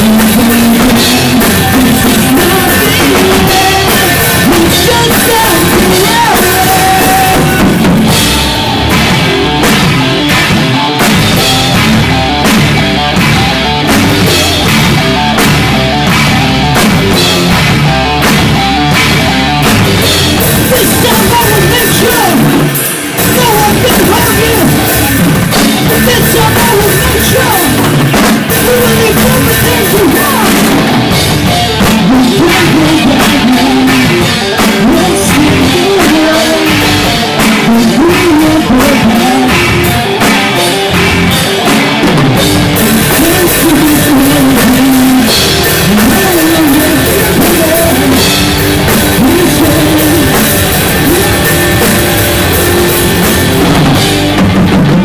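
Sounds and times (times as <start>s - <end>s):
person singing into microphone: 0.0s - 8.2s, 20.4s - 40.9s, 42.8s - 52.3s
drum kit: 0.0s - 55.0s
electric guitars: 0.0s - 55.0s
rock band playing: 0.0s - 55.0s.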